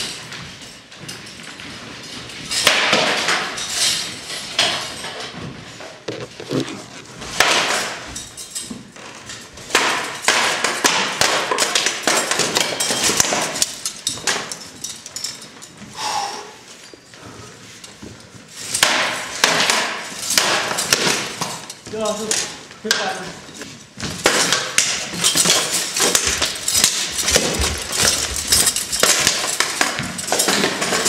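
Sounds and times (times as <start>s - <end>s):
swords cracking on shields and armour: 2.5s - 5.4s, 6.6s - 15.0s, 18.6s - 31.0s.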